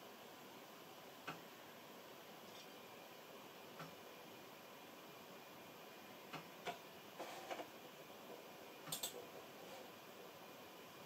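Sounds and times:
computer mouse clicks: 8.9 - 9.2.

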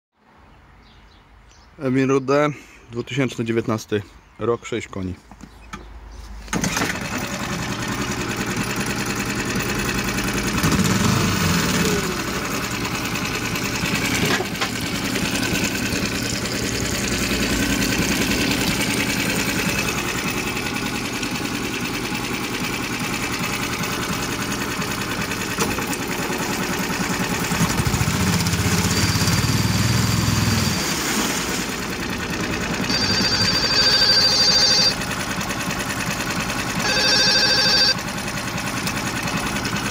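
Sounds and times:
outboard motor running: 6.5 - 39.9
high-pitched ringing tone: 28.6 - 31.0, 32.9 - 35.0, 36.8 - 38.0.

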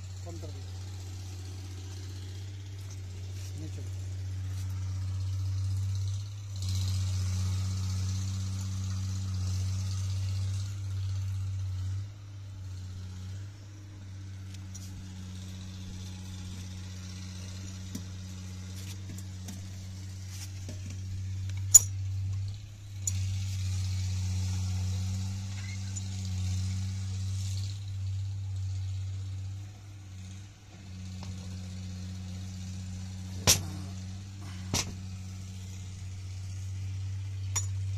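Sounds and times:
steady low hum: 0.0 - 37.9
metal parts clinking: 21.5 - 23.2, 37.5 - 37.8.

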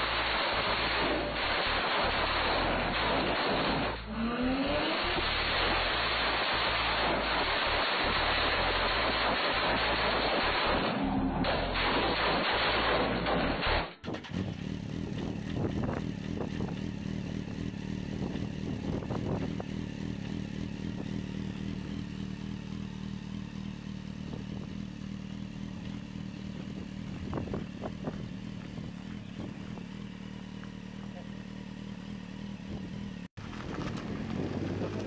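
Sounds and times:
small car engine idling: 14.0 - 35.0.

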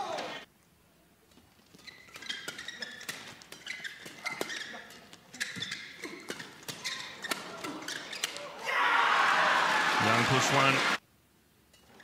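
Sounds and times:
shoes squeaking on court: 1.3 - 8.5
rackets hitting shuttlecock: 2.0 - 8.5.

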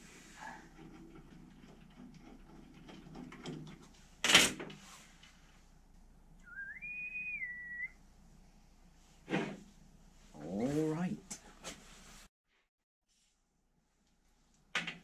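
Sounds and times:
person whistling: 6.4 - 8.0.

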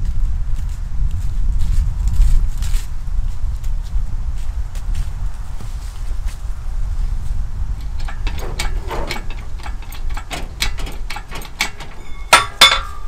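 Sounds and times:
loud metal clank: 7.8 - 13.0
metallic clicks and knocks: 7.8 - 13.0.

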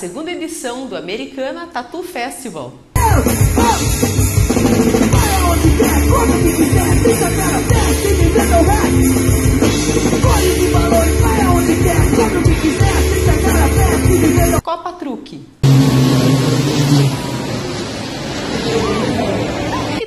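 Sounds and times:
person singing: 3.0 - 4.0, 5.1 - 9.3, 10.2 - 14.6
punk rock band playing: 3.0 - 14.6.

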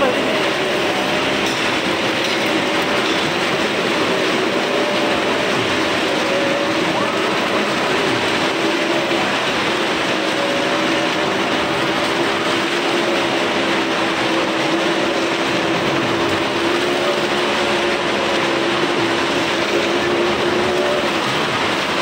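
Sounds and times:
motorcycle and car engines droning: 0.0 - 22.0.

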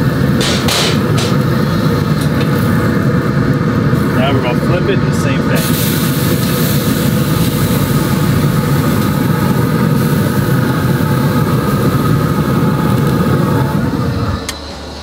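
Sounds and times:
low rumble: 0.0 - 15.0
steak sizzling: 5.6 - 13.4.

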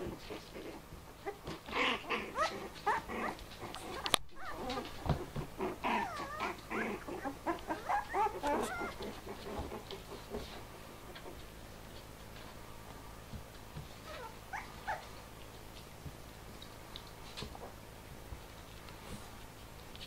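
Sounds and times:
puppies squeaking and whining: 1.2 - 11.4, 14.0 - 15.3.

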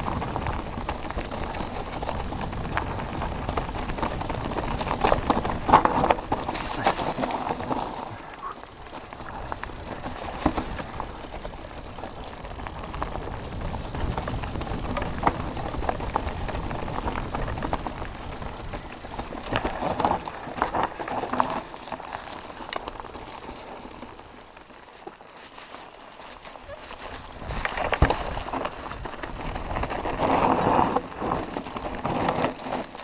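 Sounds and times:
wind buffeting microphone: 0.0 - 20.3
bike rattling over bumps: 0.0 - 33.0
tyres crunching over dirt trail: 0.0 - 33.0.

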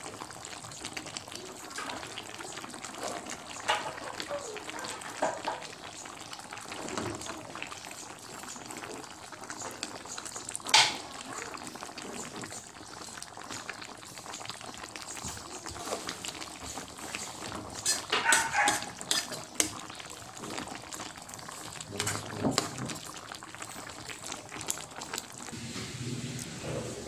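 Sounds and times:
stew bubbling in a pot: 0.0 - 27.0
metal spatula stirring: 15.5 - 23.0.

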